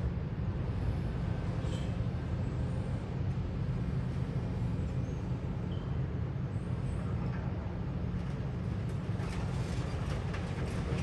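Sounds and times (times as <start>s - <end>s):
demolition machinery engine rumble: 6.7s - 11.0s.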